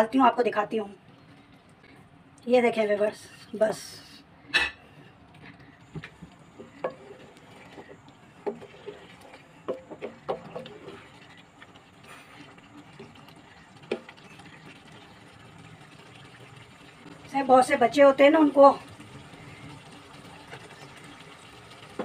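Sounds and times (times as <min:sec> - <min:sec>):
wet stirring of gravy: 0:05.2 - 0:17.3.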